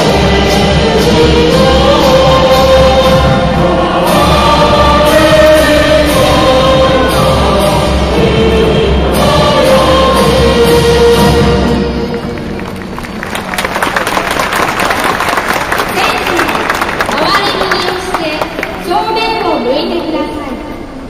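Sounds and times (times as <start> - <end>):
choir singing: 0.0 - 12.4.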